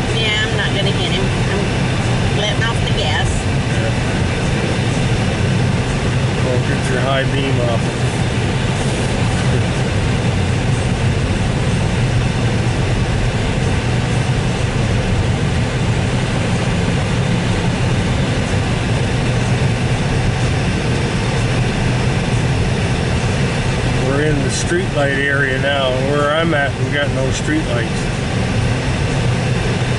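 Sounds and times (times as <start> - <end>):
engine low hum: 0.0 - 29.9.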